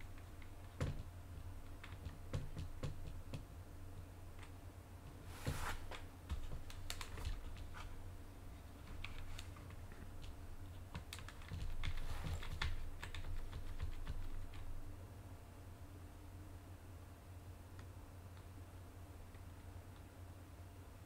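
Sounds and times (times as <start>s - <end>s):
steady low hum: 0.0s - 21.0s
keyboard keys clicking: 8.9s - 14.7s.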